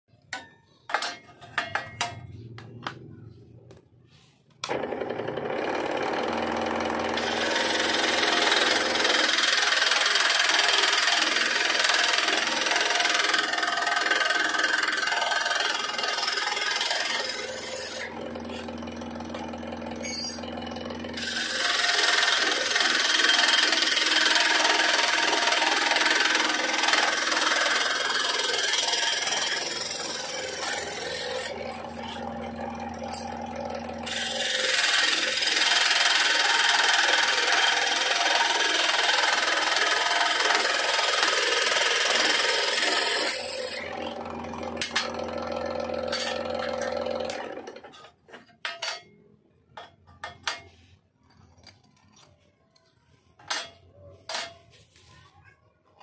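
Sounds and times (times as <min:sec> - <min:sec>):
scroll saw cutting metal: 0:04.6 - 0:49.1.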